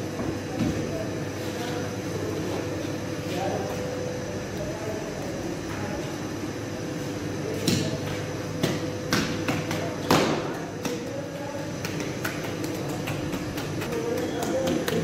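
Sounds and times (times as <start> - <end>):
steady background hum: 0.0 - 15.0
hands slapping dough: 7.6 - 15.0.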